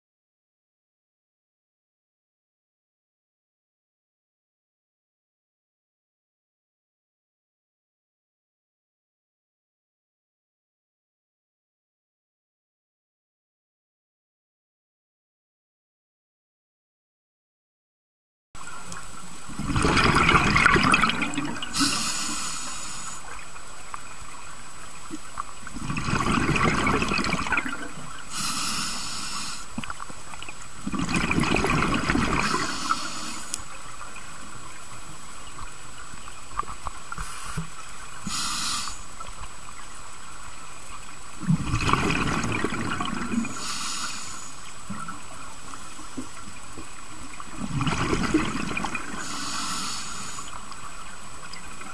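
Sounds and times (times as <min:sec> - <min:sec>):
exhaled bubbles gurgling: 0:18.9 - 0:23.4, 0:25.2 - 0:34.8, 0:41.3 - 0:45.4, 0:46.2 - 0:51.9
regulator inhalation hiss: 0:21.7 - 0:23.3, 0:28.3 - 0:29.8, 0:32.4 - 0:33.6, 0:37.2 - 0:37.6, 0:38.2 - 0:39.1, 0:43.5 - 0:44.7, 0:49.2 - 0:50.6.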